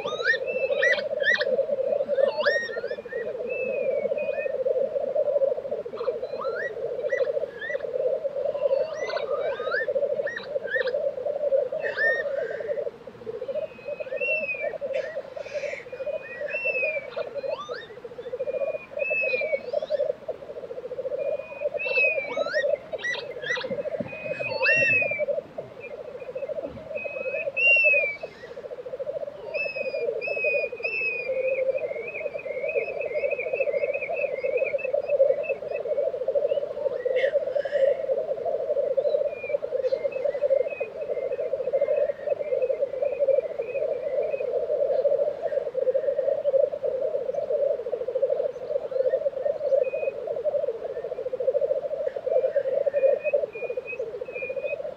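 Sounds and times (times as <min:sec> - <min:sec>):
bubbling grouse chorus: 0:00.0 - 0:54.9
high sliding bird calls: 0:21.6 - 0:28.7.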